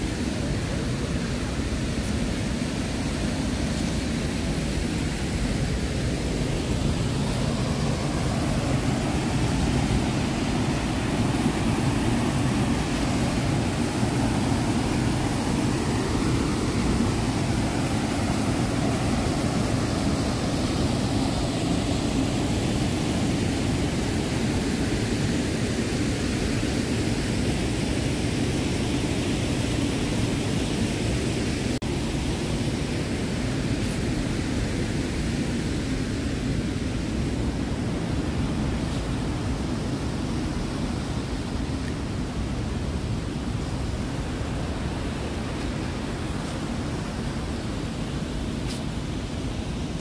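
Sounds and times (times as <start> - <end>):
waterfall rushing: 0.0 - 34.4.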